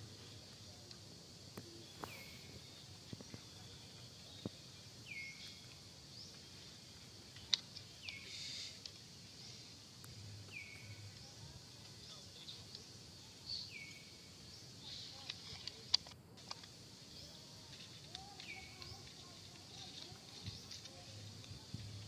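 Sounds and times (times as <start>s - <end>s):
high insect drone: 0.0s - 22.0s.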